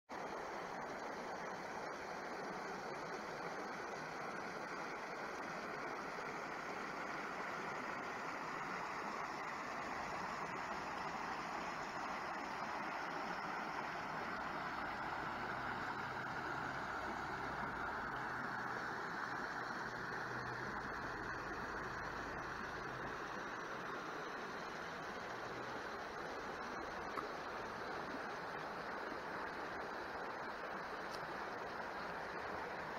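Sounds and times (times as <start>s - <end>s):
water rushing over rocks: 0.1s - 32.9s.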